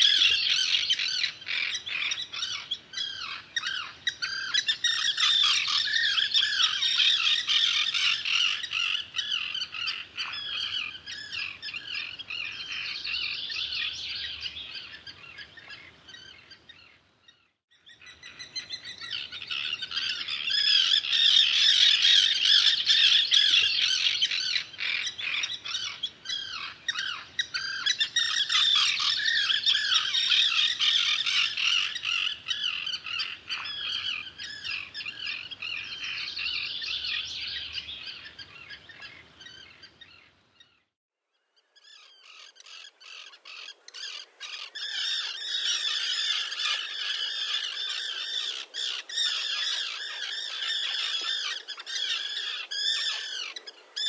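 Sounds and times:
terns calling: 0:00.0 - 0:40.9, 0:41.6 - 0:54.0.

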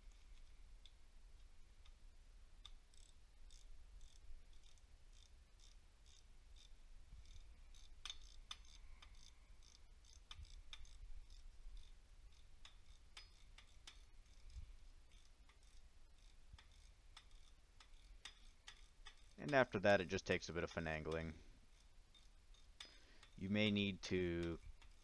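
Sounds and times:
socket ratchet clicking: 0:02.6 - 0:19.6, 0:21.1 - 0:23.4, 0:24.4 - 0:25.0.

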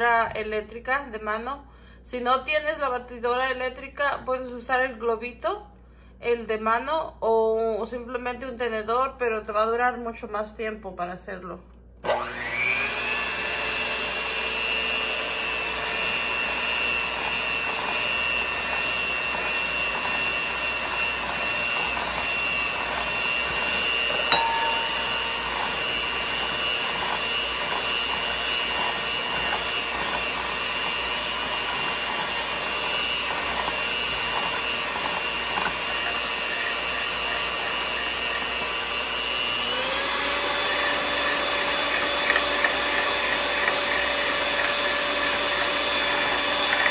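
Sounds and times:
electric hand mixer whining: 0:12.0 - 0:46.9.

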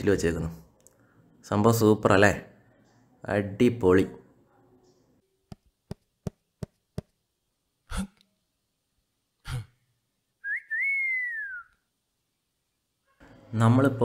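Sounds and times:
rising and falling whistle: 0:10.4 - 0:11.8.

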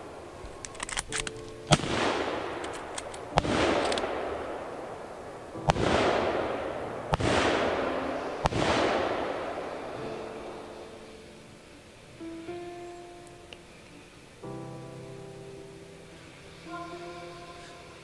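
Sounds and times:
distant gunshots: 0:01.7 - 0:11.0
loud gunshots echoing: 0:01.7 - 0:11.0.

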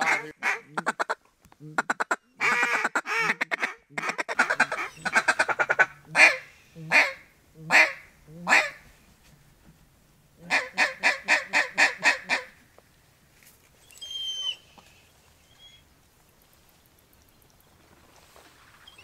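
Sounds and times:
duck quacking: 0:00.0 - 0:08.8, 0:10.4 - 0:12.5.

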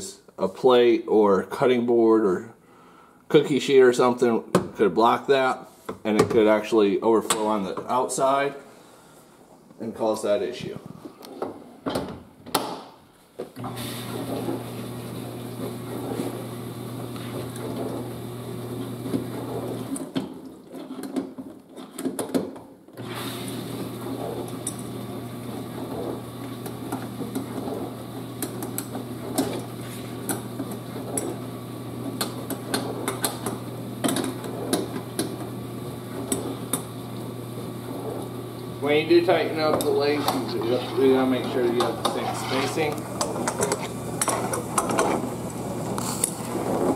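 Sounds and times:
dishwasher pump humming: 0:13.6 - 0:20.3, 0:23.0 - 0:46.9.

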